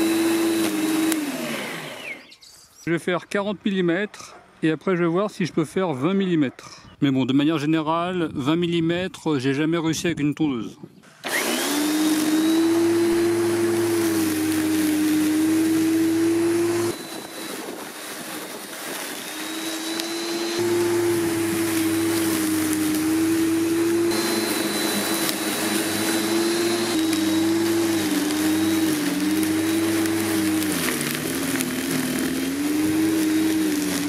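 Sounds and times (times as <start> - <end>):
electric lawnmower motor whining: 0.0 - 2.4, 11.1 - 34.0.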